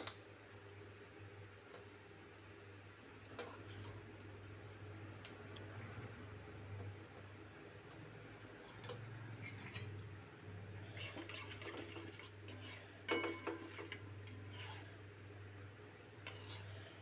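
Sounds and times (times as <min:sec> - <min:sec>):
spatula scraping a metal pan: 0:10.8 - 0:15.0, 0:16.2 - 0:17.0.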